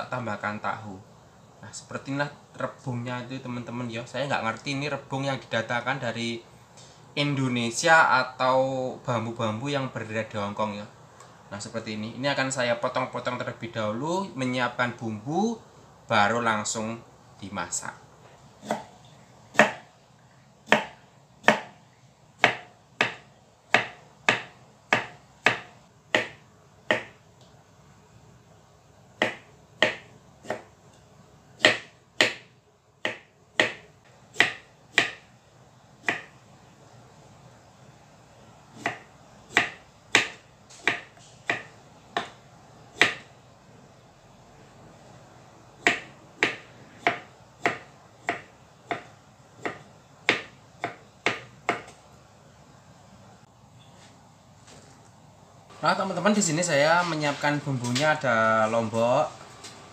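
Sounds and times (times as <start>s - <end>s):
knife chopping on wooden block: 18.6s - 18.9s, 19.5s - 19.9s, 20.6s - 21.8s, 22.4s - 27.2s, 29.2s - 30.7s, 31.6s - 35.3s, 36.0s - 36.4s, 38.8s - 42.4s, 43.0s - 43.3s, 45.8s - 52.0s.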